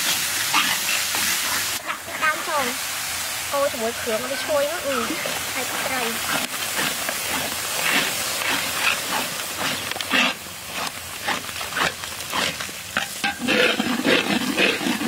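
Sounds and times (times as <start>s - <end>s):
metal spatula scraping wok: 0.0s - 2.4s, 13.0s - 15.0s
frying sizzle: 0.0s - 15.0s.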